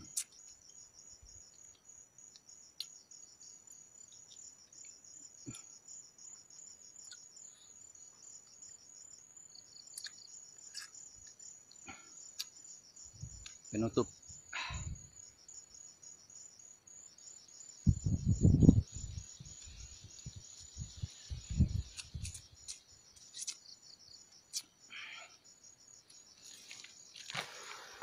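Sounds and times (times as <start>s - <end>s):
insect chirping: 0.0s - 28.0s.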